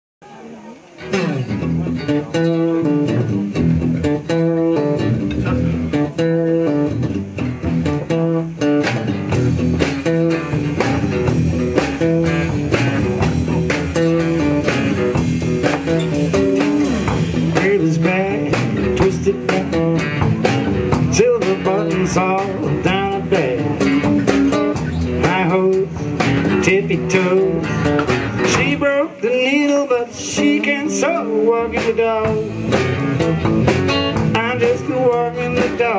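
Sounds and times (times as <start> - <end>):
small band playing: 0.2 - 35.9
drum fill: 1.0 - 29.0, 30.4 - 35.9
man singing: 17.3 - 33.3, 34.1 - 35.9.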